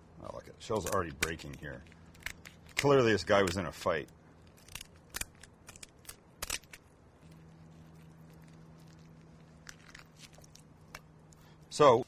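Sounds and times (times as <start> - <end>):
faint steady hum: 0.0 - 12.0
shears snipping shell: 0.8 - 6.9.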